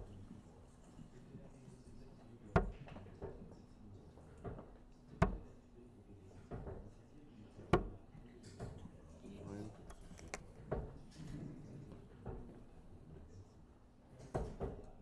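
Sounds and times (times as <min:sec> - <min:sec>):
darts hitting dartboard: 0:02.6 - 0:03.3, 0:05.2 - 0:05.6, 0:07.7 - 0:08.0.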